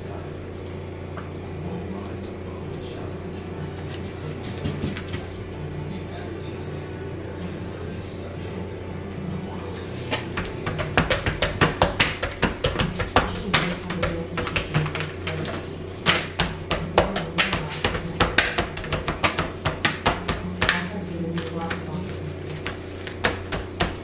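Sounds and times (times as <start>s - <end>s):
hands slapping raw fish: 10.1s - 20.9s.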